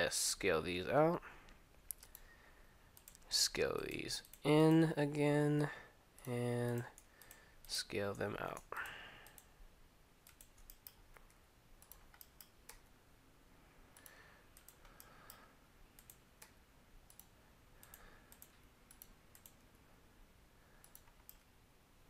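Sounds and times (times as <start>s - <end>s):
computer mouse and keyboard clicks: 1.9s - 2.3s, 3.0s - 4.5s, 10.2s - 12.9s, 14.0s - 15.4s, 16.0s - 19.7s, 20.8s - 21.5s.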